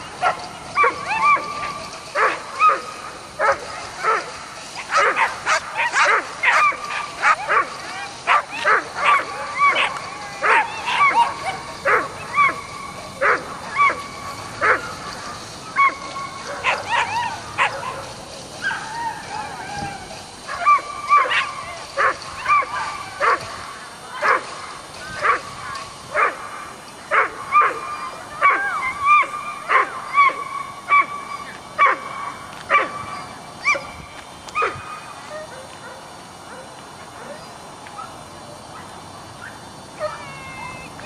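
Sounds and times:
dog yipping and barking: 0.2s - 23.5s, 24.2s - 24.6s, 27.1s - 34.0s.

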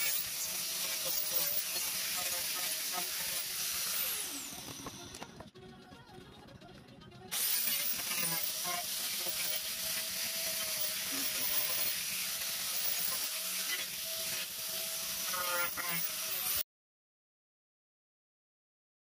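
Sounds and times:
angle grinder grinding wood: 0.0s - 5.4s, 7.3s - 16.6s.

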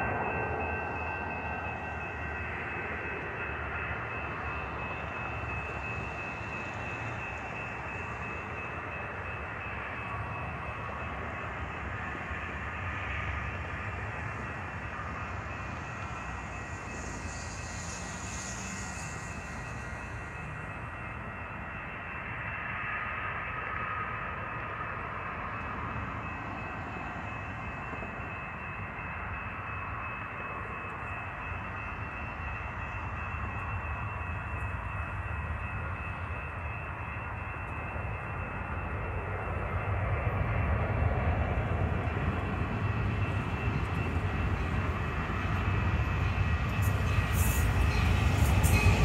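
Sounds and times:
high-pitched whine: 0.0s - 49.0s
hiss: 16.2s - 20.6s.

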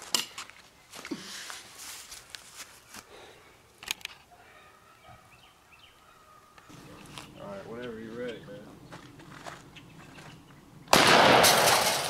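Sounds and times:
shotgun handling rustle: 0.0s - 3.1s, 3.8s - 4.3s.

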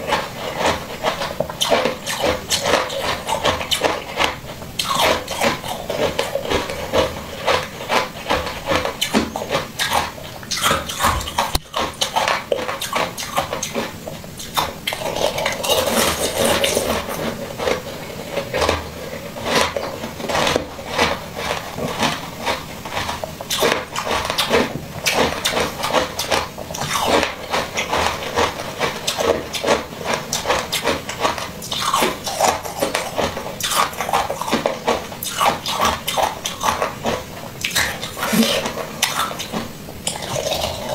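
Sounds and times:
wet chewing and slurping: 0.0s - 40.9s.

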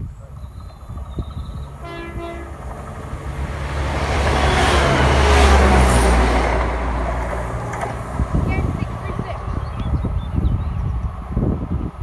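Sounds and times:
train passing rumble: 0.0s - 12.0s
train horn blast: 1.8s - 6.8s.

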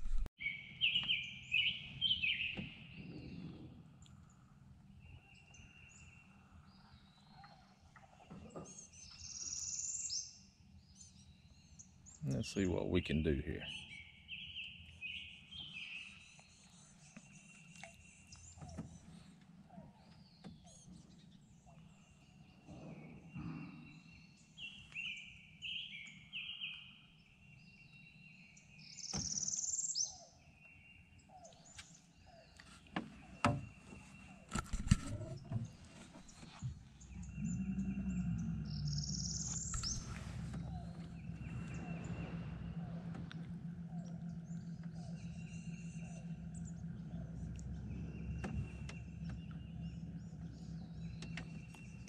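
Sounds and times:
low steady hum: 0.0s - 0.3s, 33.1s - 52.0s
birds chirping and singing: 0.0s - 52.0s.

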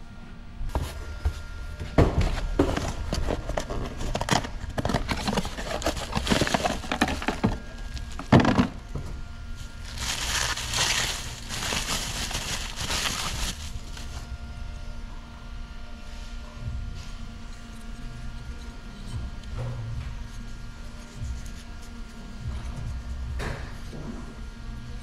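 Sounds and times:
paper and cardboard rustling: 0.7s - 8.8s, 9.6s - 14.3s
plastic bag crinkling: 2.7s - 8.8s, 9.6s - 14.3s.

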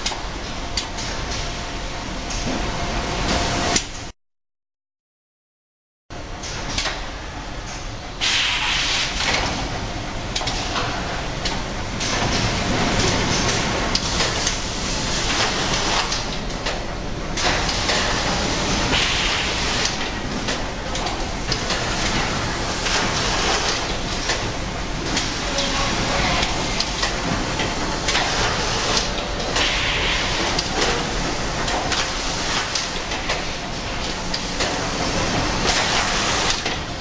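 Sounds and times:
machine clicks and knocks: 6.4s - 7.1s, 10.3s - 14.6s, 15.3s - 16.8s, 17.4s - 18.1s, 19.8s - 24.5s, 26.4s - 29.8s, 30.4s - 34.8s, 35.4s - 36.9s
packing machinery running: 9.0s - 37.0s.

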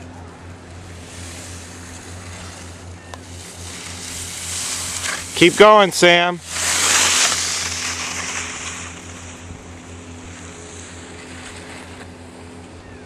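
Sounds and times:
steady low hum: 0.0s - 13.0s
skis sliding on packed snow: 0.7s - 12.6s.

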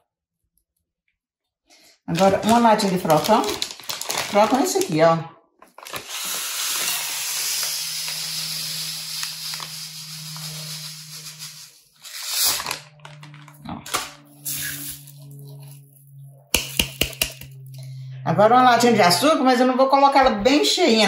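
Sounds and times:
dry corn meal pouring: 5.9s - 13.4s.

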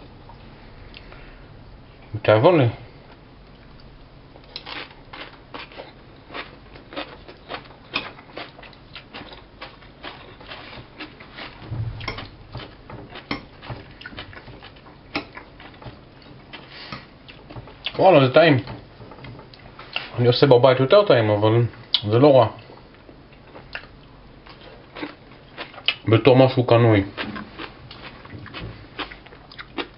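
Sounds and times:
chewing crunchy cabbage: 3.6s - 11.6s, 12.4s - 18.0s, 22.6s - 26.1s, 27.0s - 29.9s.

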